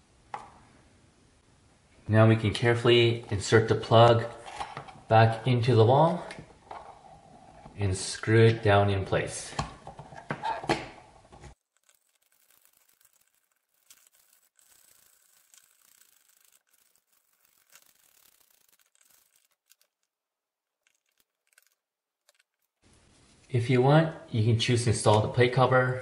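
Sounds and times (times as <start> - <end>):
screwdriver turning screws: 11.8 - 20.1.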